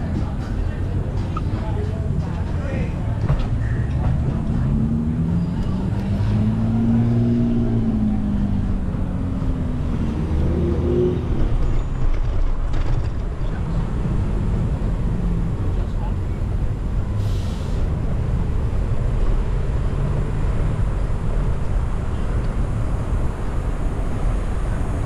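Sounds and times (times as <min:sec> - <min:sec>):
wind and road rumble: 0:00.0 - 0:25.0
vehicle engine passing: 0:03.0 - 0:12.2.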